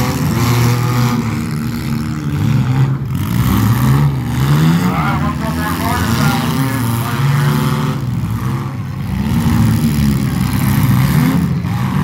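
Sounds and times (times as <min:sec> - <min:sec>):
car engines revving: 0:00.0 - 0:12.0.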